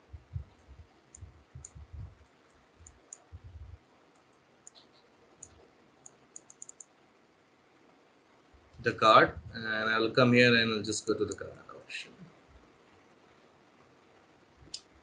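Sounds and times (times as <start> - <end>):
soft low thumps: 0.0 - 2.2, 2.8 - 3.8, 8.6 - 9.6
computer mouse clicks: 0.4 - 7.0, 14.7 - 14.9.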